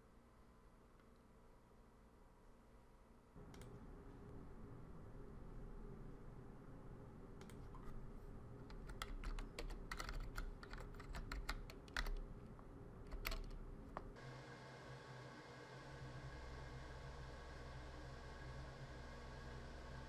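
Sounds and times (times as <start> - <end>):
steady low hum: 0.0 - 20.0
keyboard keys clicking: 8.7 - 12.3, 13.1 - 13.6.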